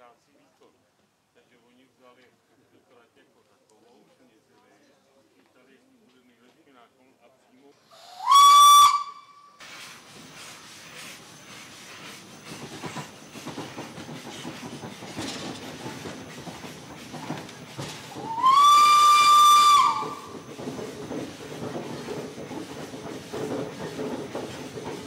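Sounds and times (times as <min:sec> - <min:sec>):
steam whistle blasts: 0:08.0 - 0:09.6, 0:18.2 - 0:20.4
train rattling clatter: 0:09.6 - 0:25.0.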